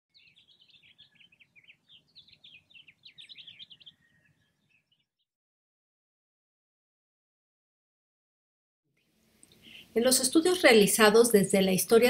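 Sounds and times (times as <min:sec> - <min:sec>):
birds chirping: 0:00.1 - 0:05.1, 0:09.4 - 0:12.0.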